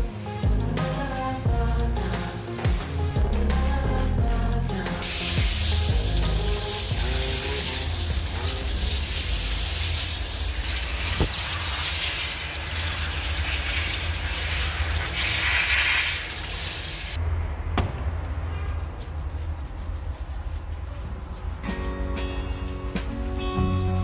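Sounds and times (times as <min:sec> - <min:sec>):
background music with bass beat: 0:00.0 - 0:09.2, 0:21.6 - 0:24.0
shower sprayer hissing: 0:05.0 - 0:17.2.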